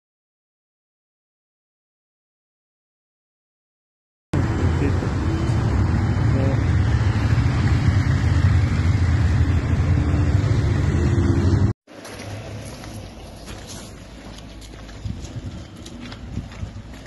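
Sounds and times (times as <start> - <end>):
cars and motorcycles driving off: 4.4 - 17.0
outdoor background noise: 4.4 - 17.0.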